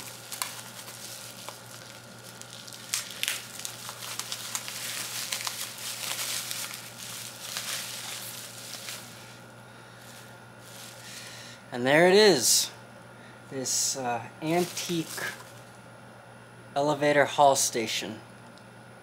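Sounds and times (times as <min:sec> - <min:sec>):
bubble wrap crinkling: 0:00.0 - 0:11.3, 0:14.4 - 0:15.8
packing peanuts rustling: 0:00.0 - 0:11.4, 0:14.4 - 0:15.8.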